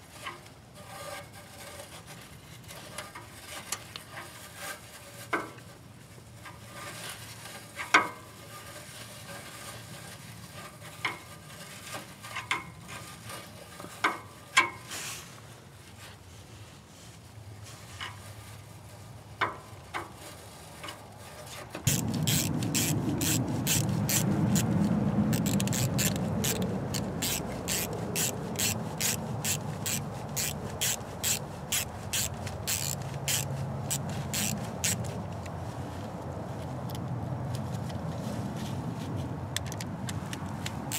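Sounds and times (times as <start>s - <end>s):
hand ratchet rasping: 21.9s - 35.2s.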